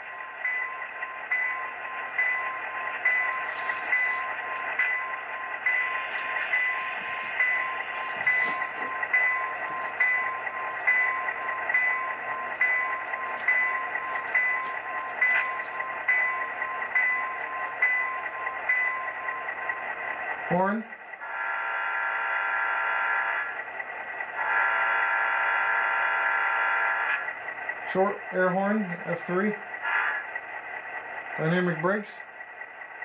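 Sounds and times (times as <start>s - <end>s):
locomotive bell ringing: 0.0s - 20.6s
diesel engine idling: 0.0s - 33.0s.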